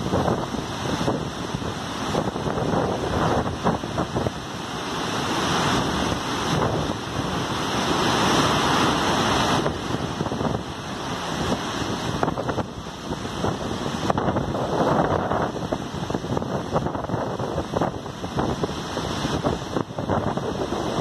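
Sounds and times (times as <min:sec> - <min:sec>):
waterfall rushing: 0:00.0 - 0:21.0
wind buffeting microphone: 0:00.0 - 0:21.0.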